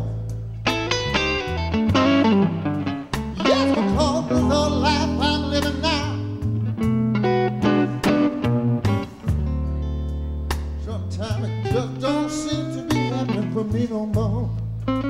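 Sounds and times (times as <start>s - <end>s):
blues band playing live: 0.0s - 15.0s
person singing: 3.3s - 6.4s, 10.8s - 14.6s.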